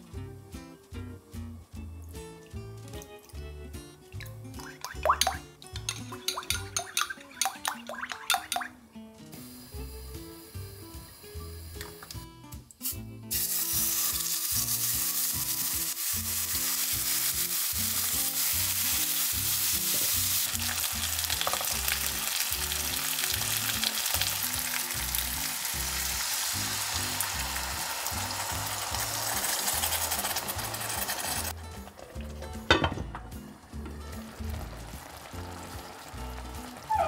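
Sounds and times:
light background music: 0.0 - 37.0
fish sizzling in a pan: 9.4 - 12.0, 12.8 - 32.0, 33.6 - 37.0.

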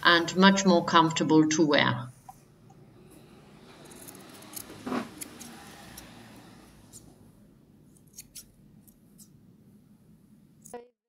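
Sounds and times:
scissors snipping fabric: 3.8 - 7.1, 7.9 - 9.3.

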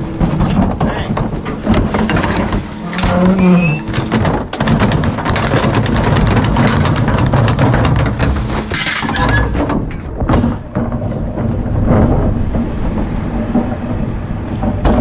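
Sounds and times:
recyclables clattering into hopper: 0.0 - 12.6
garbage truck engine running: 0.0 - 15.0
hydraulic tipper whine: 1.1 - 4.7.

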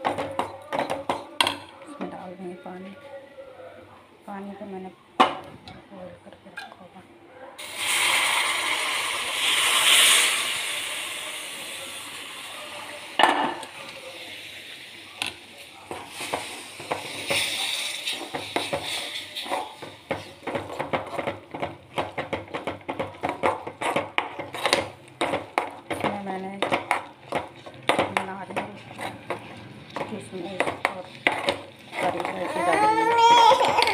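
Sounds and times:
water sizzling in hot pan: 7.6 - 33.6
steel spoon scraping pan: 15.9 - 22.0, 23.2 - 33.9.

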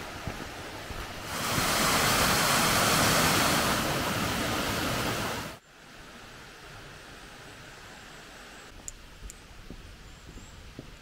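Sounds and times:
stream rushing over stones: 0.0 - 5.6.

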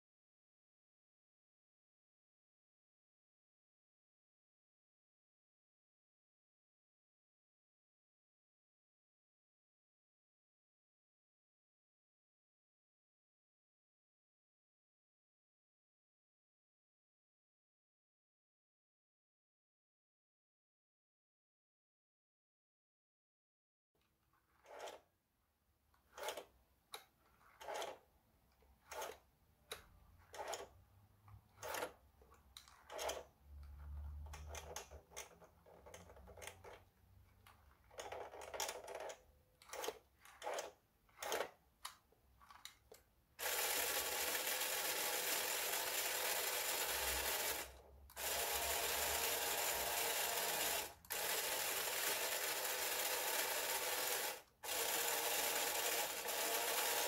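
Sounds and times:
toy electric motor whirring: 43.4 - 57.0.

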